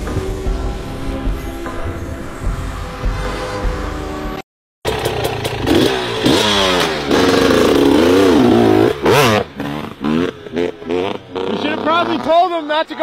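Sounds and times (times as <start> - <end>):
dirt bike engine revving: 4.9 - 12.6.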